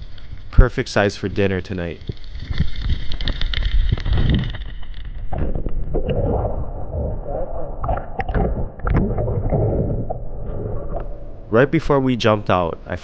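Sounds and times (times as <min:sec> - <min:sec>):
underwater rumble: 0:00.0 - 0:13.0
bubbling pops and clicks: 0:02.0 - 0:11.1.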